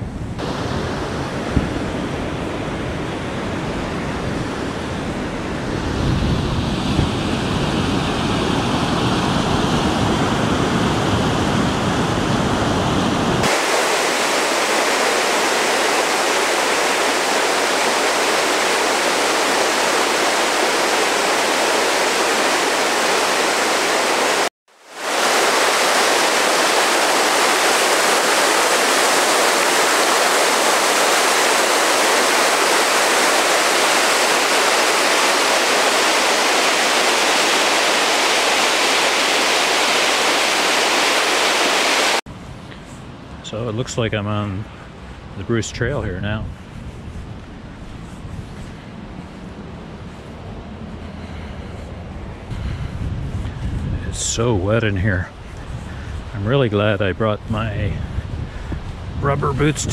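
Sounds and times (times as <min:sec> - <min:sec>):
wind rumble on microphone: 0:00.0 - 0:15.1, 0:42.3 - 0:59.9
floodwater rushing over falls: 0:00.4 - 0:42.2.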